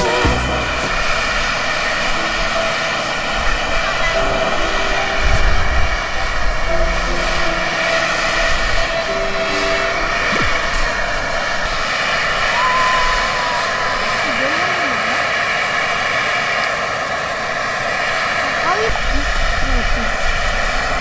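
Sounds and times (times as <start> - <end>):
faint voices: 0.0 - 11.6, 12.6 - 15.5.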